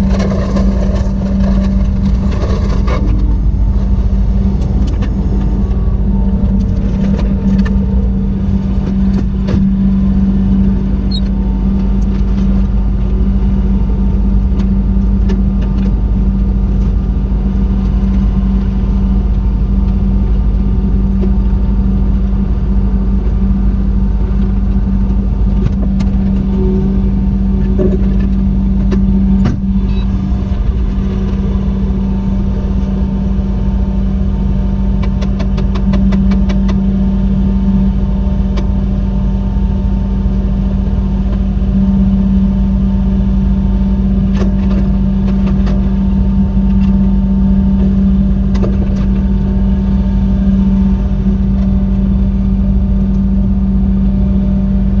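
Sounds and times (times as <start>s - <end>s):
diesel engine droning: 0.0s - 55.0s.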